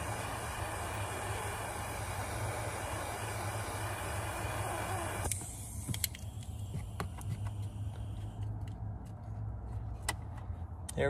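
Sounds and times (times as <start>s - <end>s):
heat gun blowing: 0.0s - 8.2s.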